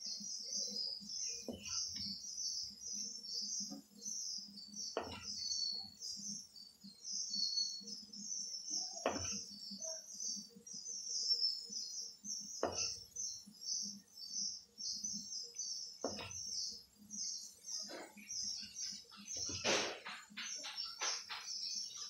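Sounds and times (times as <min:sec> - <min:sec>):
plastic spoon knocking on steel plate: 0:05.0 - 0:05.3, 0:09.1 - 0:09.4, 0:12.6 - 0:13.0, 0:16.0 - 0:16.4.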